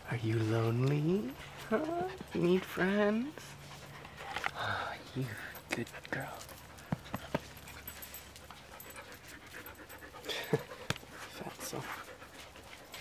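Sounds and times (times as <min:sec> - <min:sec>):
dog panting: 0:00.2 - 0:13.0.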